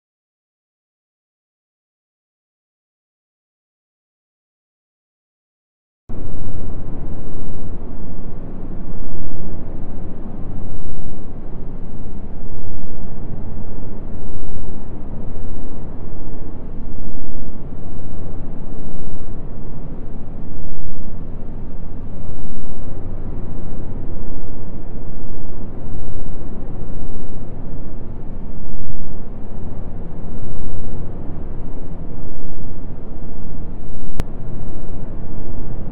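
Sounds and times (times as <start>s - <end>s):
low rumbling noise: 6.1s - 35.9s.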